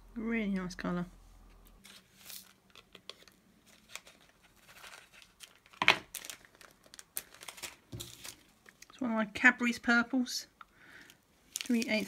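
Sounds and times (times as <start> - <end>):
plastic bags crinkling: 2.0 - 9.0, 11.0 - 12.0.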